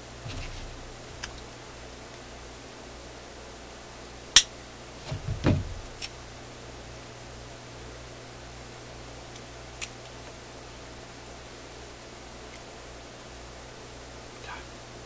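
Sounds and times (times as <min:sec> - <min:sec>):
dull bumps: 0:00.0 - 0:01.8, 0:05.0 - 0:06.0
low hum: 0:00.0 - 0:02.6.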